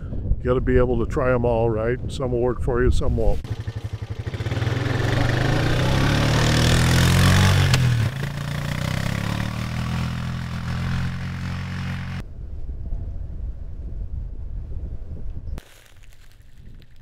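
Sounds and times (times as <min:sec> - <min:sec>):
quad engine pulling away: 0:03.4 - 0:12.2.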